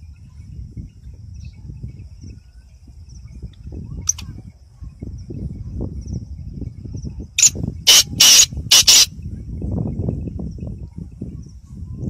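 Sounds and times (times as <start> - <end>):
bird calling harsh notes: 7.4 - 9.1.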